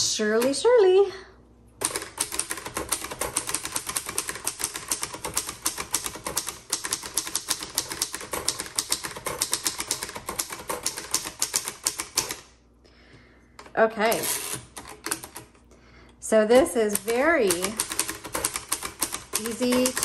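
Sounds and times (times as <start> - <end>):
typewriter keys clacking: 1.8 - 12.4, 14.1 - 15.6, 16.6 - 20.0.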